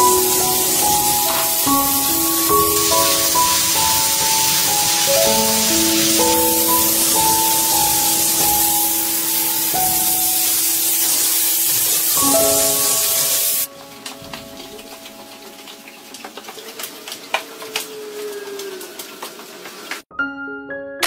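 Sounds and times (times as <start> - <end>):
fogger spraying hiss: 0.0 - 13.7.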